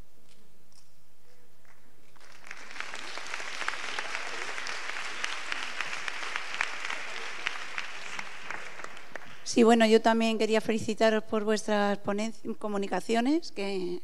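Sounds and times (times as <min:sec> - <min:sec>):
audience applause: 0:02.2 - 0:09.5.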